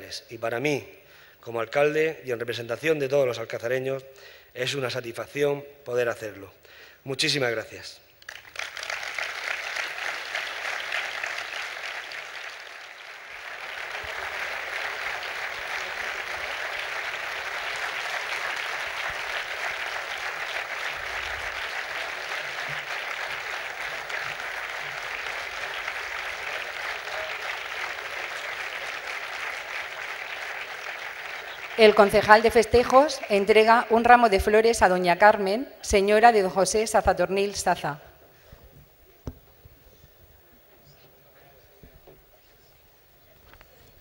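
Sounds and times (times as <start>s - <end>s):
audience applauding: 8.2s - 33.8s.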